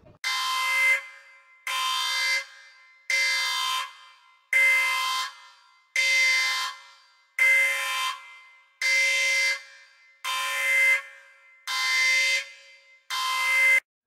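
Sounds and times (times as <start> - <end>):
electronic alarm tone: 0.2 - 13.8.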